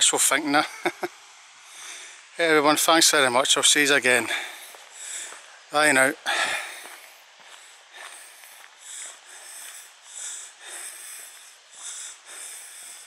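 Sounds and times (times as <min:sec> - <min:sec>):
faint steady hiss: 0:00.0 - 0:13.0
person breathing: 0:01.6 - 0:02.3, 0:04.2 - 0:13.0.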